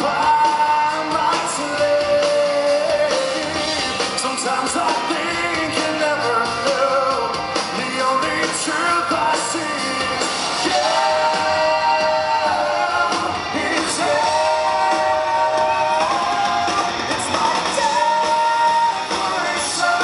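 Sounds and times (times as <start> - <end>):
live rock band playing: 0.0 - 20.0
man singing: 0.0 - 20.0.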